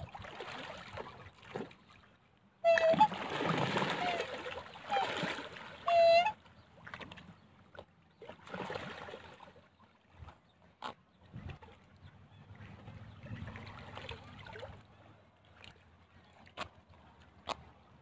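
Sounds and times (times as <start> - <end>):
birds splashing in water: 0.1 - 18.0.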